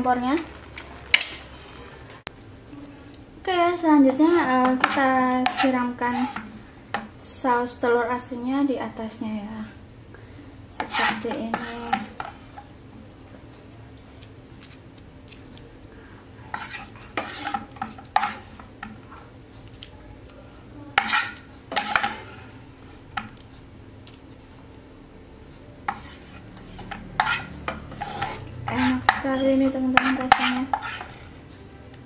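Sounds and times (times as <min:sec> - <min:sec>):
spatula scraping a frying pan: 0:04.2 - 0:07.1, 0:10.7 - 0:12.7, 0:16.4 - 0:19.2, 0:21.0 - 0:23.3, 0:25.8 - 0:31.6.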